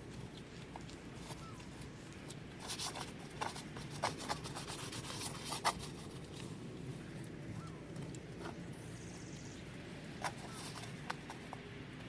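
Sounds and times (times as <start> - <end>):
paint brush scrubbing: 2.6 - 6.5.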